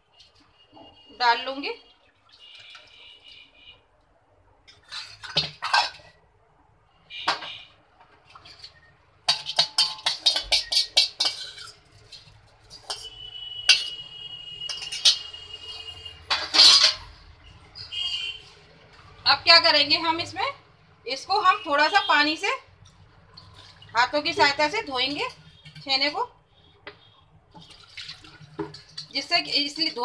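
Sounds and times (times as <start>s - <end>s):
kitchen utensils clinking: 4.7s - 6.2s, 8.3s - 14.0s, 14.6s - 17.2s.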